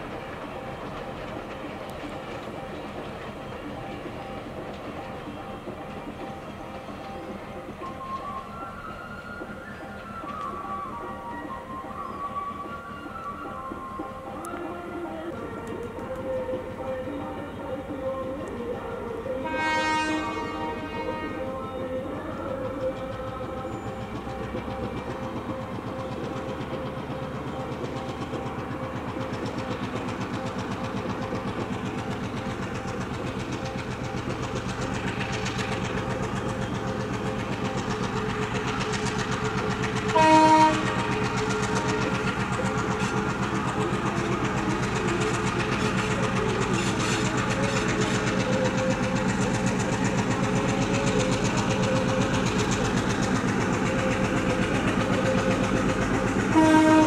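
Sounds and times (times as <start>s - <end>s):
diesel locomotive engine: 0.0s - 57.0s
train horn blast: 19.3s - 21.8s, 40.0s - 42.2s, 56.5s - 57.0s.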